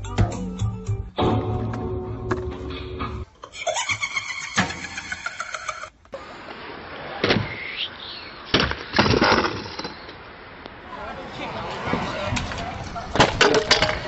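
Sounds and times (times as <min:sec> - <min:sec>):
scooter and rider hitting ground: 0:08.5 - 0:10.2, 0:12.2 - 0:14.0.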